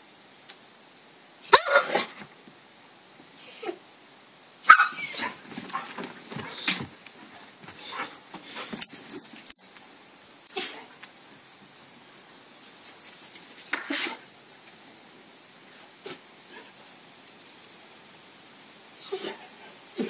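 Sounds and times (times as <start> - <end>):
dog whining and yipping: 3.4 - 3.8, 4.6 - 5.4, 19.0 - 19.4
dog yelping: 4.6 - 5.4.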